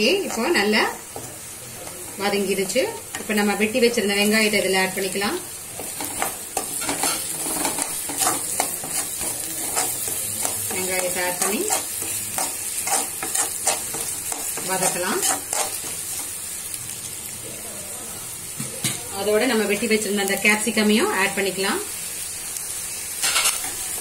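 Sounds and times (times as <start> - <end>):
onions sizzling in oil: 0.0 - 24.0
metal spatula scraping pan: 5.8 - 16.3, 23.2 - 24.0.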